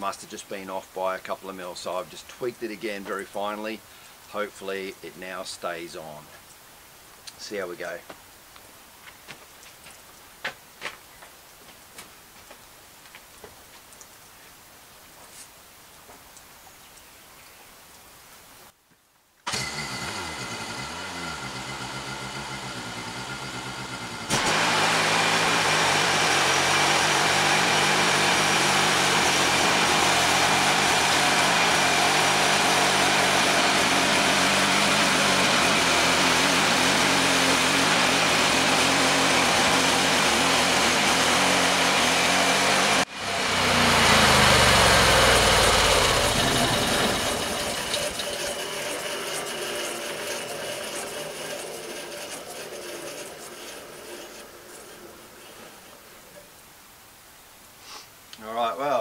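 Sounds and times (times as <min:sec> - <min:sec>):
blade sawing through log: 0:19.5 - 0:55.9
sawmill engine running: 0:19.5 - 0:56.4.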